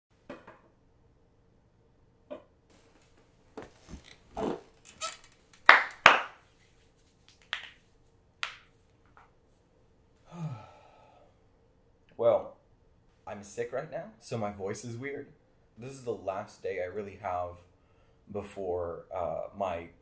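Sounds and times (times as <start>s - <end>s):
leather recliner creaking: 3.6s - 5.3s
person sighing: 10.2s - 11.3s.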